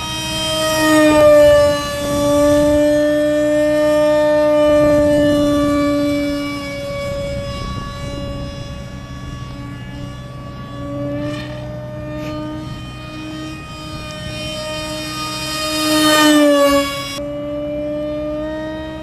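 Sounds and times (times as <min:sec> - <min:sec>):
model plane motor whine: 0:00.0 - 0:19.0.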